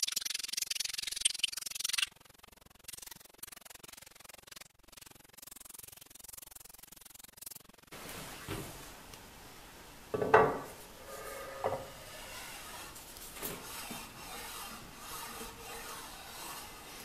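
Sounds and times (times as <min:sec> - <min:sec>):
metal knocking on metal: 0:10.2 - 0:12.0
metal rubbing and sliding: 0:10.7 - 0:17.0.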